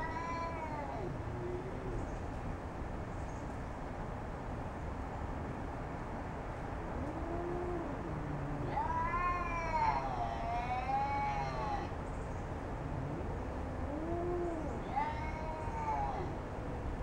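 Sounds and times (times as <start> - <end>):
cats yowling: 0.0 - 2.0, 7.0 - 12.0, 12.8 - 16.4.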